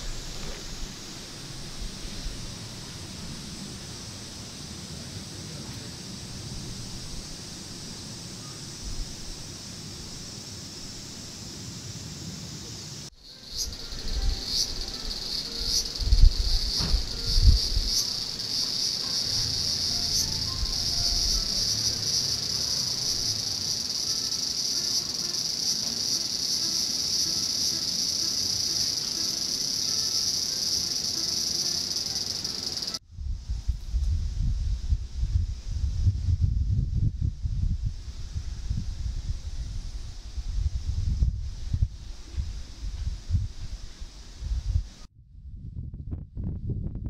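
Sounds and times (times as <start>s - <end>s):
cicadas shrilling: 0.0s - 33.0s.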